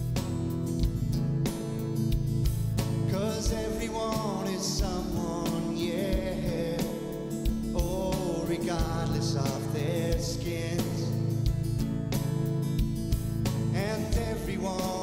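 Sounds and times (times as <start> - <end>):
song with singing over a beat: 0.0 - 15.0.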